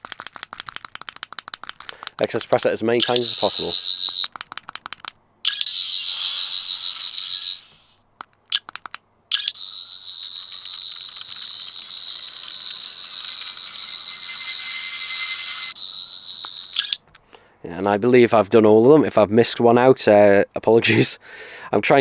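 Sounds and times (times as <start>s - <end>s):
toy electronic buzzing: 3.0s - 4.3s, 5.5s - 8.0s, 9.4s - 17.0s.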